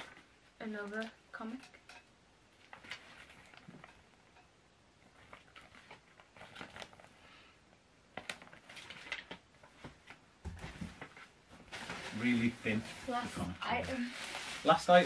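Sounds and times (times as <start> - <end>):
paper pages rustling: 5.1 - 7.2, 8.1 - 15.0.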